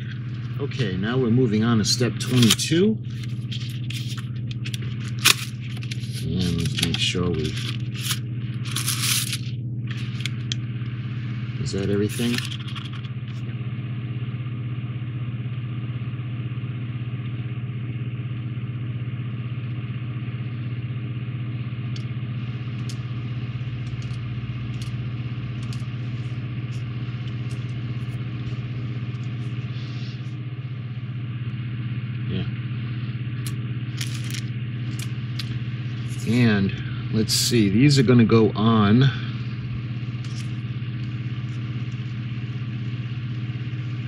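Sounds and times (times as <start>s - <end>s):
low machine hum: 0.0s - 44.0s.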